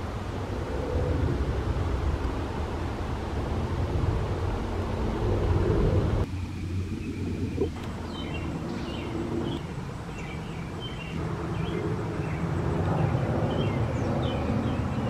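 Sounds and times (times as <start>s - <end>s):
jet airliner engines rumbling: 0.0s - 15.0s
birds chirping: 6.2s - 15.0s.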